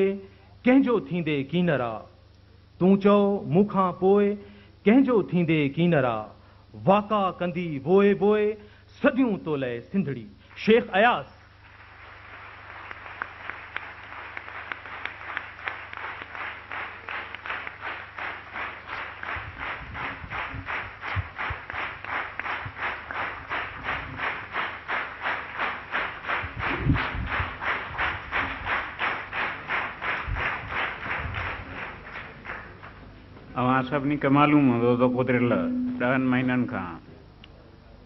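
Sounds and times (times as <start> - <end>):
audience clapping in rhythm: 10.5 - 33.3.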